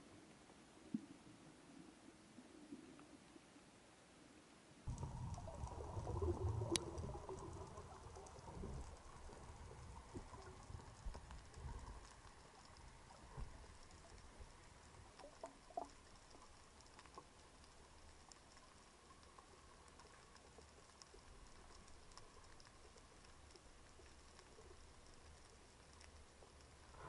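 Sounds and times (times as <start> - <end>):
low rumble of moving water: 0.0 - 27.0
underwater crackling and ticking: 4.9 - 27.0.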